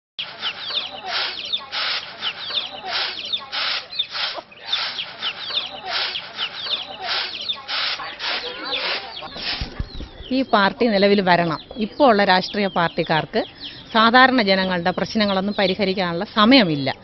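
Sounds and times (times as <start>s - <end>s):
rice swishing on winnowing tray: 0.2s - 9.1s
chickens clucking and chirping: 0.2s - 17.0s.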